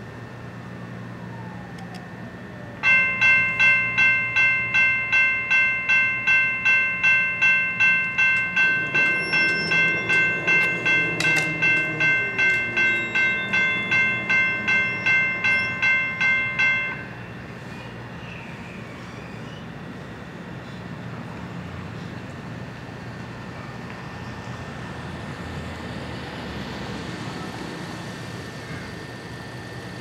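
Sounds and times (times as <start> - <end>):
railroad crossing bell ringing: 2.8 - 18.7.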